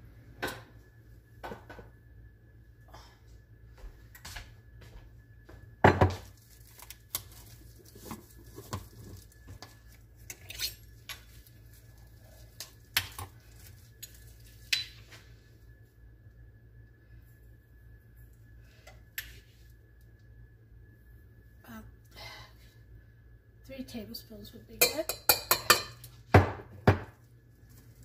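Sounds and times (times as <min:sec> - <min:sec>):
metal kitchenware clinking: 0:24.8 - 0:26.1.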